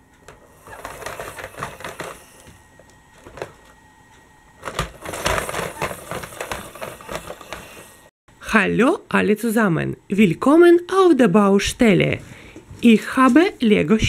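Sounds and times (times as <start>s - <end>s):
plastic toys rattling on wooden track: 0.5s - 2.5s, 4.6s - 8.0s.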